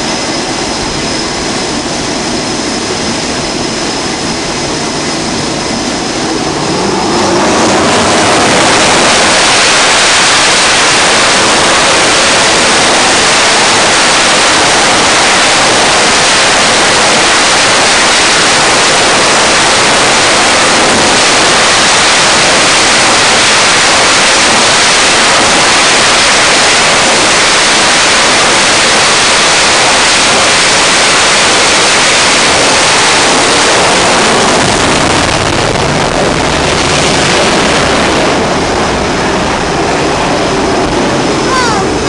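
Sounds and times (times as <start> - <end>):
jet engines roaring: 0.0 - 42.0.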